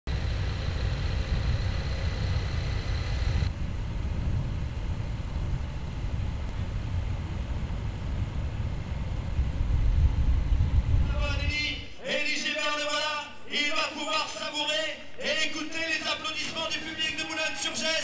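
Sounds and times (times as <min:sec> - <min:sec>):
vehicle engine: 0:00.0 - 0:11.0
wind rumble: 0:00.1 - 0:11.9
faint high whine and hiss: 0:00.1 - 0:16.8.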